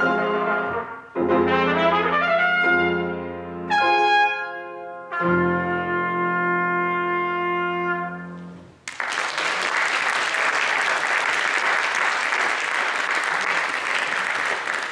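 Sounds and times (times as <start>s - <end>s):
trumpet and piano chord: 0.0s - 8.6s
audience applause: 8.8s - 14.9s.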